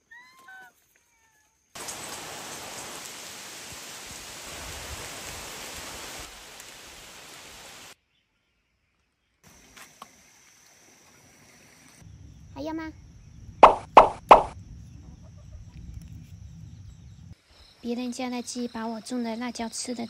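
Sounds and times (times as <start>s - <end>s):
rain falling on foliage: 1.8s - 8.0s.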